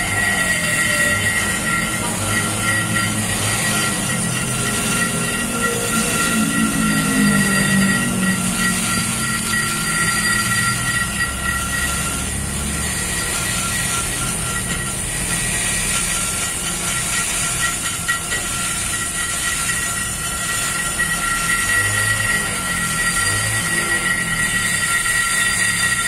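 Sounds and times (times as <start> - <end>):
die grinder whining: 0.0 - 26.0.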